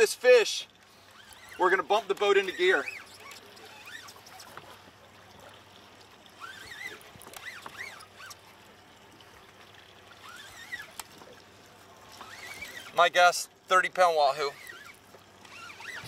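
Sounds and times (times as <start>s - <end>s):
water sloshing against a boat: 0.0s - 16.0s
faint squeaks: 0.9s - 5.6s, 6.3s - 8.5s, 10.1s - 11.0s, 12.1s - 13.0s, 14.3s - 16.0s.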